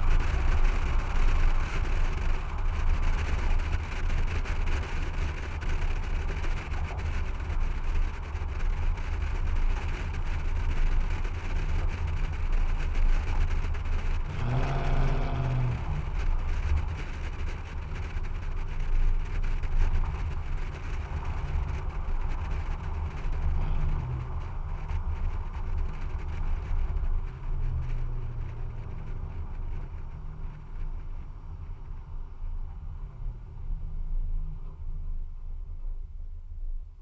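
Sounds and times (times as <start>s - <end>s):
truck engine exhaust: 11.3s - 34.4s.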